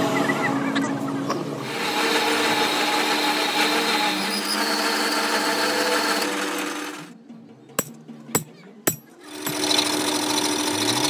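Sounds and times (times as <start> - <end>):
lathe tool scraping steel: 1.6 - 7.1, 9.2 - 11.0
lathe motor hum: 1.6 - 7.2, 9.2 - 11.0.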